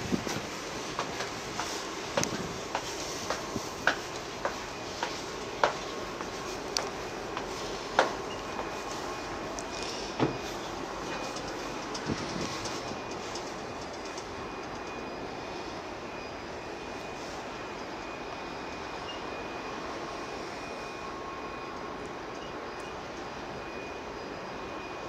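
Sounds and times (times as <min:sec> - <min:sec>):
steady rushing noise: 0:00.0 - 0:14.4
faint high whine: 0:00.0 - 0:25.0.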